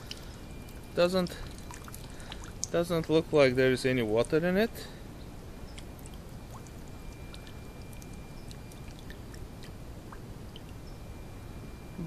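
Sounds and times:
water dripping: 0.0 - 3.2, 5.7 - 11.0
low steady hum: 0.0 - 12.0.

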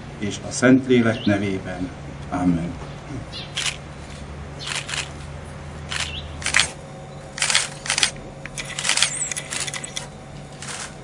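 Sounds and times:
camera shutters clicking: 3.6 - 3.8, 4.6 - 5.2, 5.9 - 6.8, 7.4 - 11.0.

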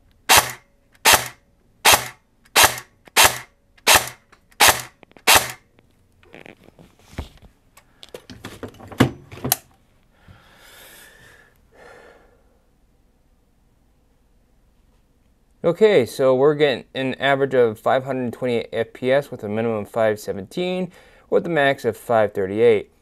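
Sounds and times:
airsoft gun shots: 0.3 - 5.6.

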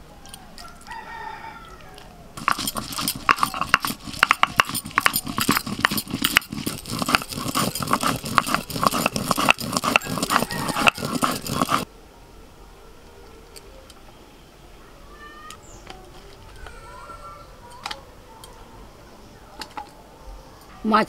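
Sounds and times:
stone roller grinding chillies: 2.4 - 11.9.

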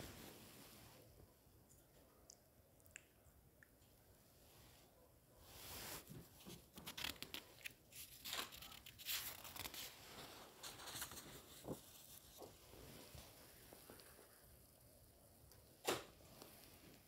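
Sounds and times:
book page turning: 5.9 - 12.6.

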